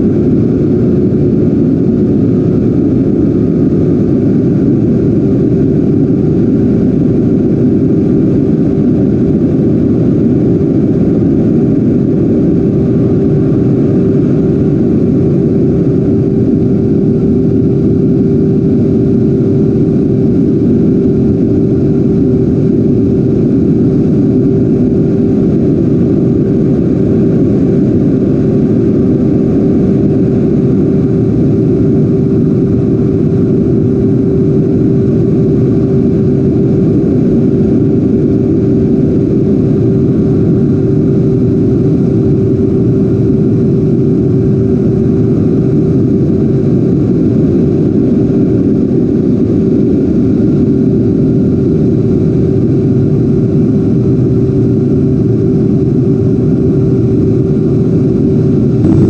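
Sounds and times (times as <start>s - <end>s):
electric ducted fan humming: 55.5s - 59.0s
airflow rushing: 58.7s - 59.0s.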